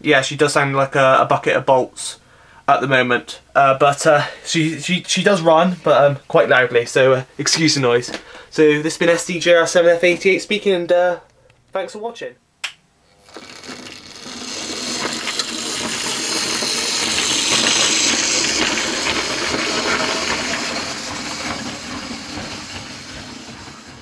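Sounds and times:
model train rattling along track: 13.6 - 24.0.

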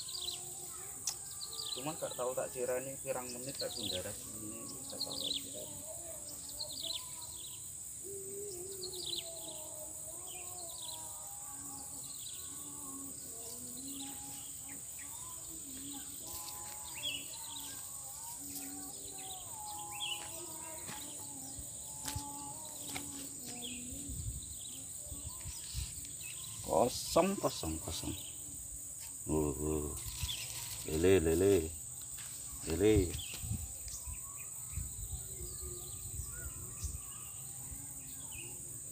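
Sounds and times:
birds chirping: 0.0 - 38.9
faint distant voices: 0.0 - 38.9
high-pitched insect drone: 0.0 - 38.9.

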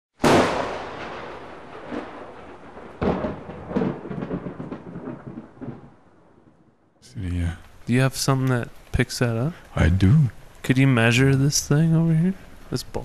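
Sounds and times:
loud boom: 0.2 - 5.8.

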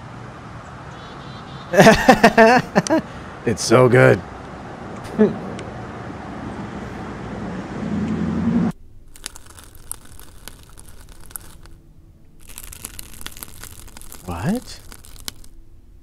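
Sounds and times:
steady outdoor hiss: 0.0 - 16.0
candy shells cracking: 9.0 - 11.8, 12.4 - 15.6.

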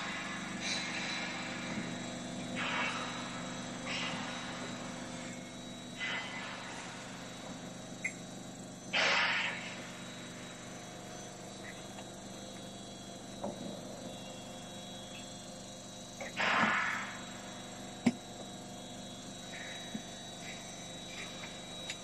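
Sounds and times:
motor hum: 0.0 - 22.0.

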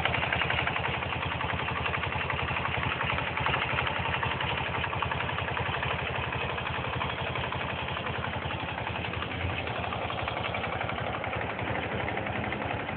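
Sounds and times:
motorcycle engine idling: 0.0 - 12.9.

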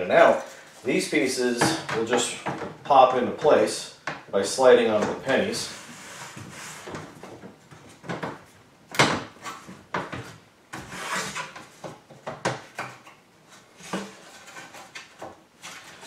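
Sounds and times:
plastic scraping rub: 10.8 - 11.7.

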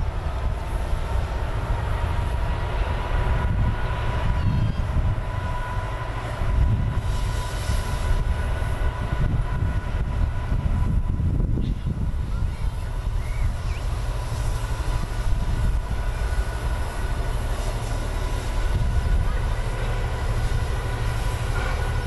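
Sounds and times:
steam hissing: 0.0 - 22.0
steam locomotive rumble: 0.0 - 22.0.

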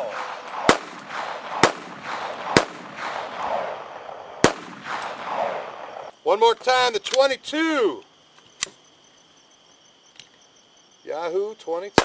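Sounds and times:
pistol shots echoing: 0.0 - 6.1.

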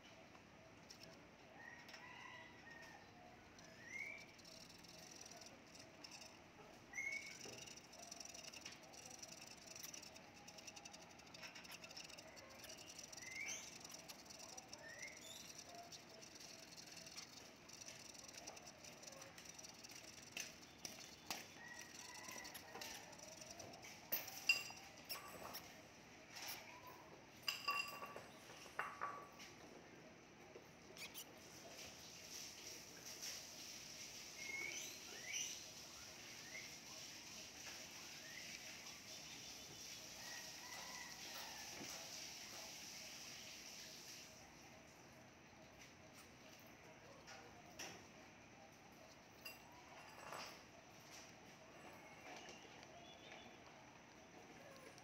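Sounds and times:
hamsters nibbling seeds: 0.2 - 2.0, 2.6 - 27.6, 30.6 - 50.0, 50.6 - 55.0
faint rising chirps: 3.5 - 25.6.

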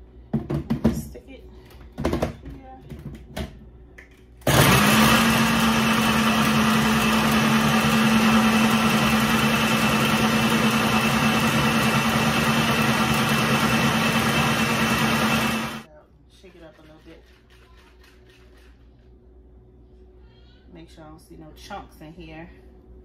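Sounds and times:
electric blender running: 4.4 - 15.9.

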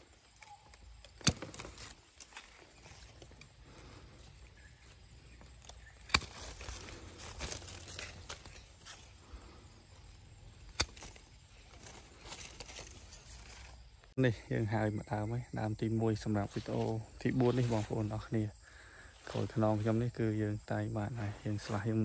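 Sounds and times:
leaves and branches rustling: 0.0 - 14.2, 16.0 - 22.0
pruning shears snipping: 0.2 - 13.8.

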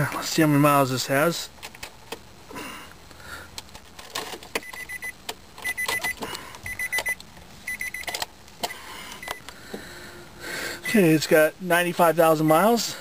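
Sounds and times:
rapid high warning beeps: 4.6 - 8.1, 8.7 - 9.5, 10.7 - 11.1.

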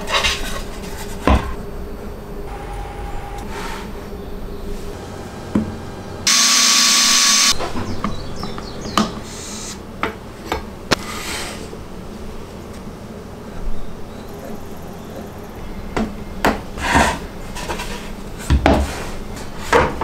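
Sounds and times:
loud even hiss: 4.8 - 7.6.

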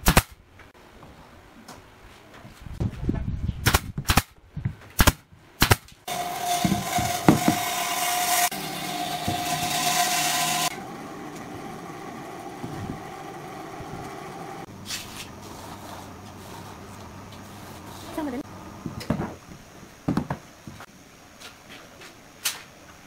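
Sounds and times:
brad nailer firing: 5.0 - 11.6
machine hissing and humming: 6.1 - 18.8
wood knocks: 6.6 - 7.6.

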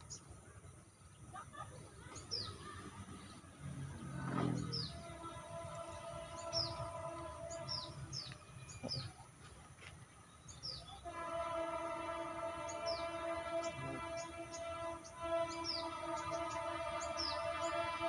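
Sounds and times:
birds chirping: 0.0 - 18.0
low outdoor rumble: 0.0 - 18.0
multi-pitch humming tone: 3.7 - 9.2, 11.1 - 18.0.

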